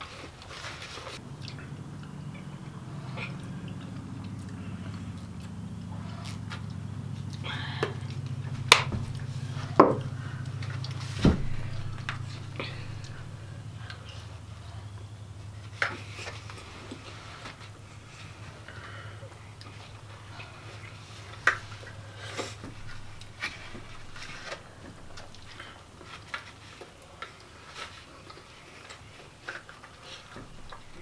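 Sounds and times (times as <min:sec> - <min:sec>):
low steady hum: 0:00.0 - 0:31.0
sharp knocks: 0:08.5 - 0:13.3.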